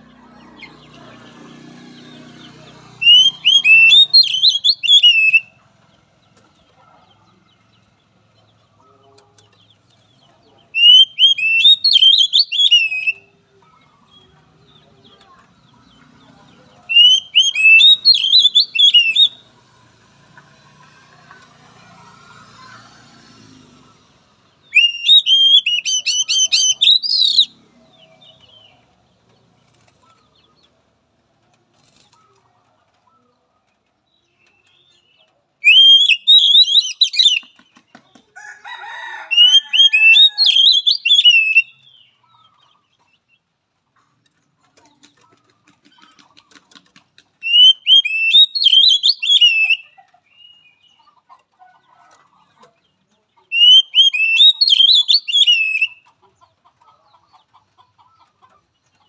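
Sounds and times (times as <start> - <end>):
bird singing whistled notes: 3.0 - 5.5, 10.8 - 13.3, 16.9 - 19.4, 24.7 - 27.5, 35.6 - 37.5, 39.4 - 42.1, 47.4 - 50.8, 53.5 - 56.0.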